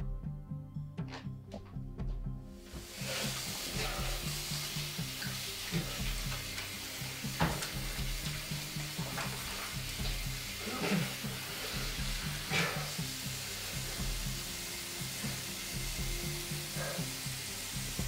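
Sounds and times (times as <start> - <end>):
low pulsing music: 0.0 - 18.0
hands washing under water: 2.7 - 13.0
tap water running into sink: 2.8 - 12.6.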